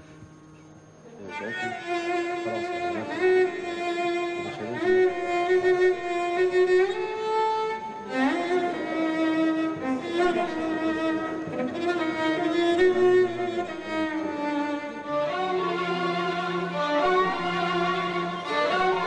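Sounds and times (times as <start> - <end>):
bowed strings: 0.0 - 19.0
violin slow melody: 0.0 - 19.0.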